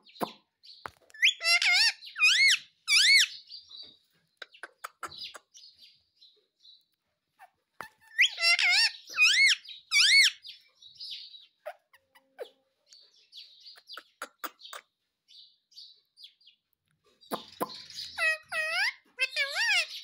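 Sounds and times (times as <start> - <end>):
parakeet calls wavering in pitch: 1.2 - 3.3, 8.0 - 10.4, 18.1 - 20.0
parakeet chirps: 1.2 - 3.6, 7.8 - 14.9, 17.2 - 20.0.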